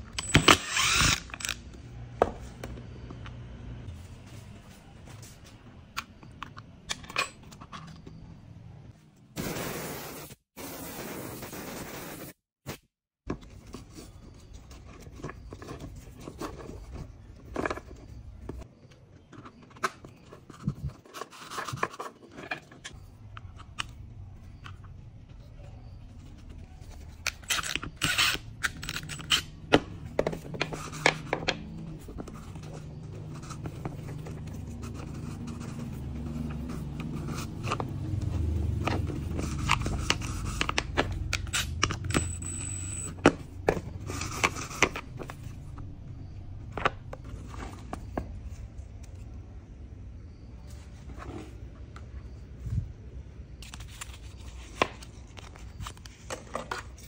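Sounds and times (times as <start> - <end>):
tools and parts clicking and scraping: 0.0 - 3.4, 5.2 - 8.6, 13.3 - 49.4.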